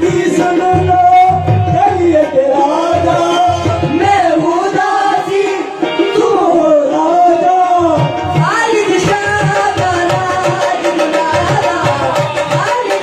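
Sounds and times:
harmonium melody: 0:00.0 - 0:13.0
man singing: 0:00.0 - 0:13.0
hand drum beating: 0:08.0 - 0:13.0.

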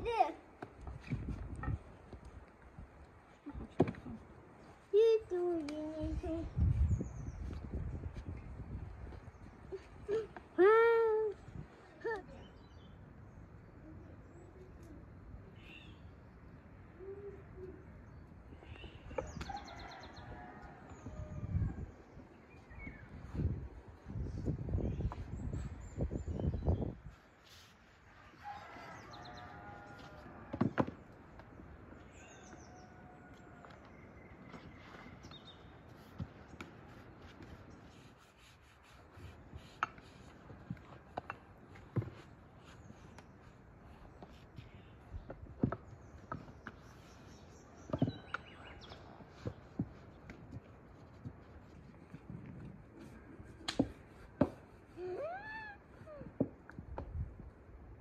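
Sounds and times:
small birds chirping: 0:03.3 - 0:08.5, 0:12.0 - 0:29.9, 0:31.7 - 0:33.3, 0:33.9 - 0:52.6
hands rubbing dough on board: 0:35.8 - 0:44.8.

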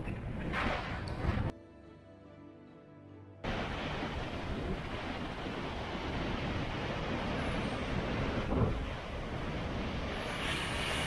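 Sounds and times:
wind buffeting microphone: 0:00.0 - 0:01.5, 0:03.5 - 0:11.0
surf breaking against rocks: 0:03.5 - 0:11.0.

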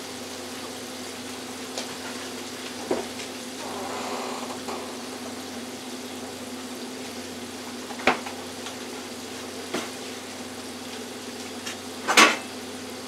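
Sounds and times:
oil bubbling and sizzling: 0:00.0 - 0:13.0.

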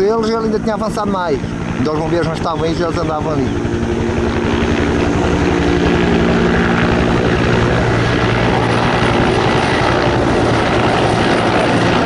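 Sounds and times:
helicopter engine drone: 0:00.0 - 0:12.0
helicopter rotor beating: 0:00.0 - 0:12.0.

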